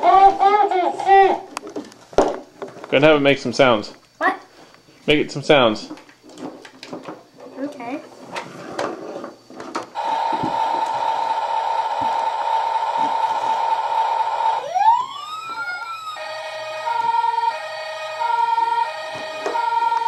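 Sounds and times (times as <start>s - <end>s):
toy siren sound effect: 10.0s - 20.0s.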